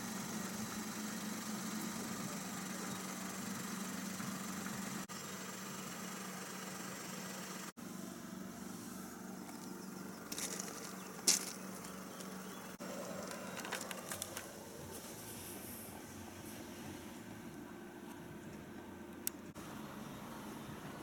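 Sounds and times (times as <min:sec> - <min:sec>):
car engine idling: 0:00.0 - 0:21.0
sharp clicks and crackles: 0:13.2 - 0:14.5.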